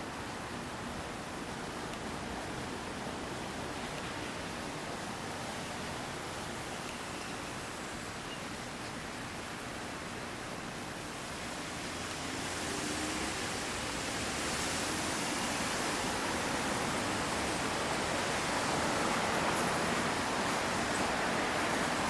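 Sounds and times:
outdoor rushing hiss: 0.0 - 22.0.

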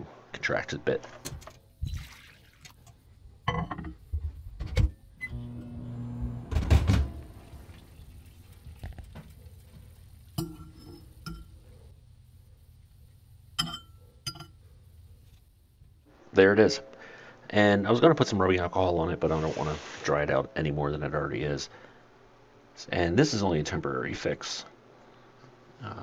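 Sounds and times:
microwave oven humming: 4.6 - 16.0
clink: 13.6 - 14.6.

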